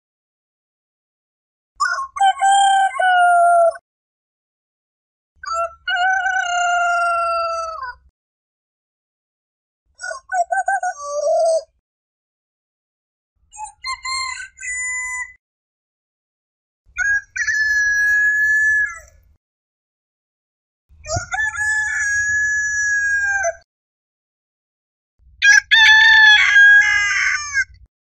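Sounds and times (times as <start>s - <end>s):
rooster crowing: 1.9s - 3.8s, 5.5s - 7.9s, 21.0s - 23.6s, 25.4s - 27.8s.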